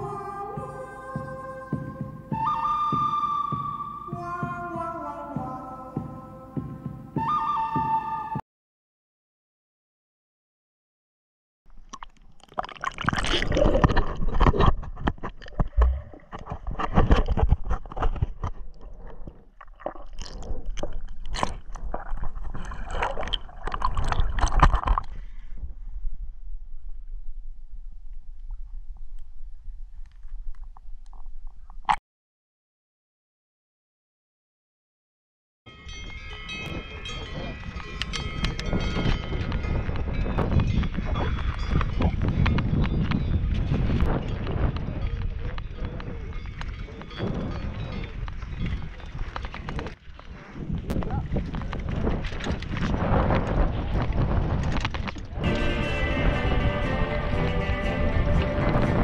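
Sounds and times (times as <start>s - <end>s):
underwater sloshing and gurgling: 11.7s - 31.8s.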